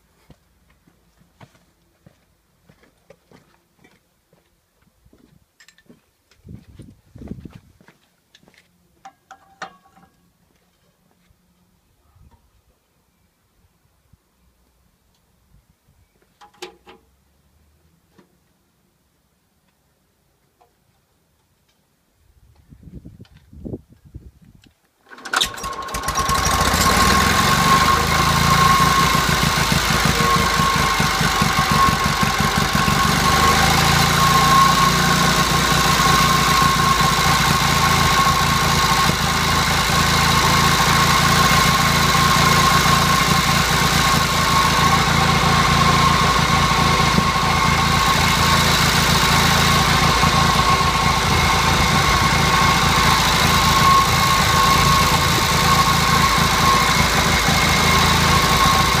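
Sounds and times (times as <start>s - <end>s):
generator engine running: 25.1s - 59.0s
steady high whine: 27.5s - 59.0s.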